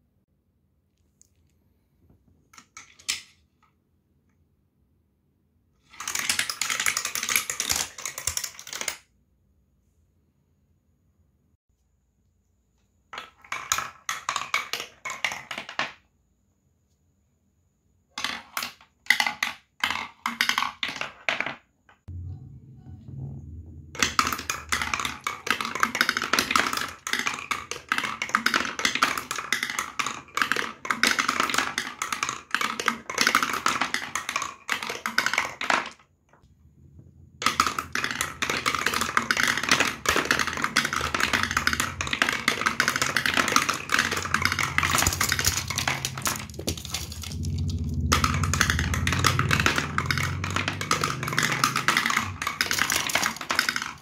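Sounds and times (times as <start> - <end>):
marbles clattering down wooden ramps: 5.8 - 9.0, 13.1 - 16.0, 18.2 - 21.7, 24.0 - 36.1, 37.4 - 54.0
low hum: 22.1 - 25.2, 36.4 - 39.1, 40.0 - 52.8.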